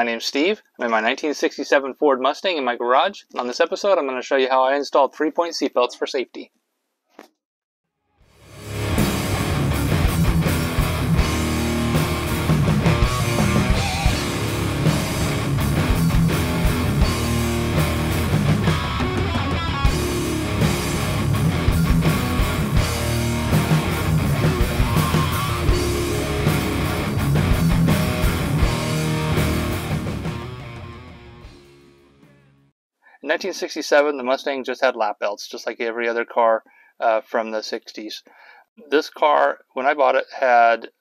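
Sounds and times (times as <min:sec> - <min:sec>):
electric guitar: 0:08.4 - 0:32.7
rock music: 0:08.4 - 0:32.7
steady drum beat: 0:08.6 - 0:30.8.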